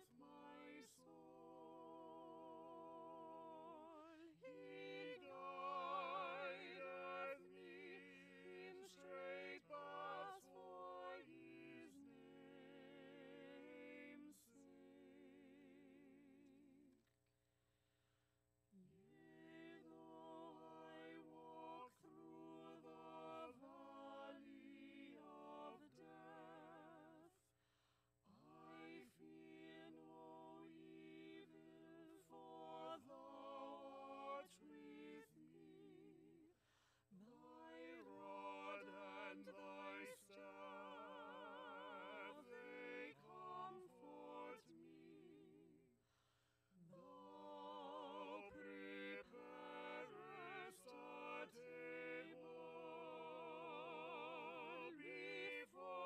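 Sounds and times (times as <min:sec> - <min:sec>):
mixed choir singing unaccompanied: 0:00.0 - 0:16.4, 0:19.0 - 0:27.3, 0:28.5 - 0:36.5, 0:37.3 - 0:45.8, 0:46.9 - 0:56.0
singers breathing: 0:27.6 - 0:28.1, 0:36.6 - 0:37.1, 0:46.0 - 0:46.7.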